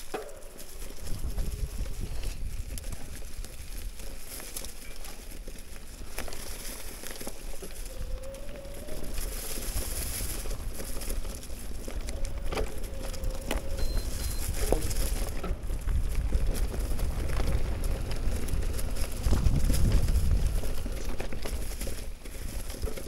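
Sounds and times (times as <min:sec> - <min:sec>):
tyres crackling through dry leaves: 0:00.0 - 0:23.0
faint electric motor whine: 0:05.7 - 0:22.0.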